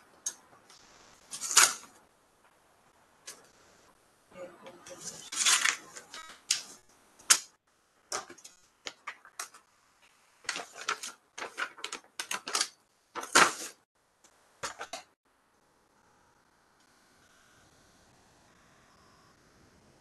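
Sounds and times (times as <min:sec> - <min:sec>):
paper rustling and crinkling: 0:10.4 - 0:12.6.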